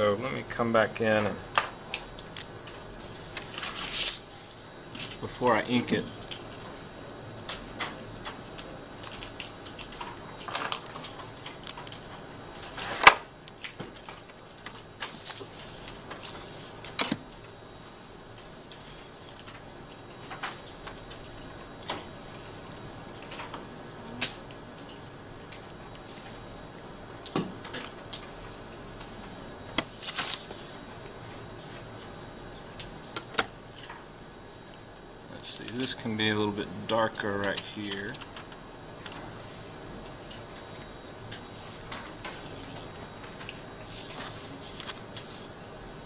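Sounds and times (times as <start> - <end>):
paper sliding rustle: 3.0 - 5.3, 15.0 - 16.8, 29.8 - 30.8, 43.9 - 45.5.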